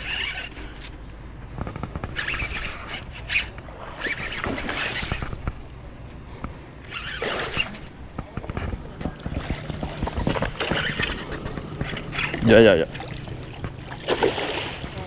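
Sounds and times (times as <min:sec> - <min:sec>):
fishing reel whirring and clicking: 0:00.0 - 0:00.9, 0:01.7 - 0:05.5, 0:10.2 - 0:12.4.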